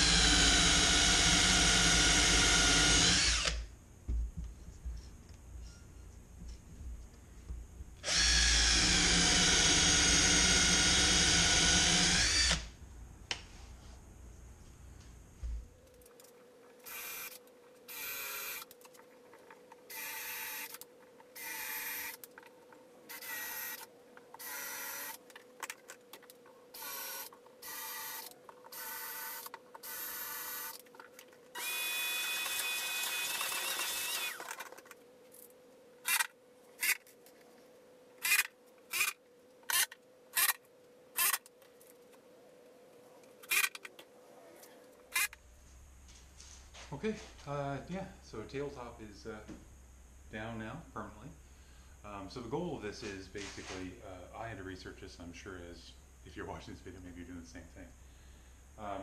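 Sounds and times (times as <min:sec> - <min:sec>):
cordless drill boring: 0:00.0 - 0:03.6, 0:08.0 - 0:12.7, 0:16.9 - 0:18.6, 0:19.9 - 0:20.7, 0:21.4 - 0:22.2, 0:23.1 - 0:23.8, 0:24.4 - 0:25.2, 0:26.8 - 0:30.8, 0:31.6 - 0:34.6.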